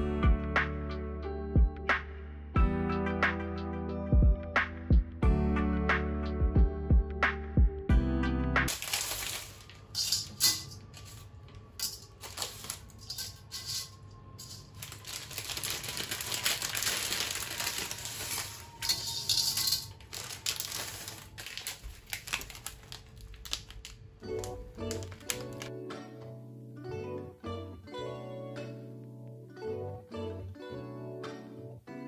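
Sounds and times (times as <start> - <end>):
dry spaghetti clattering in a pan: 8.7 - 11.0
plastic bag rustling: 8.7 - 25.7.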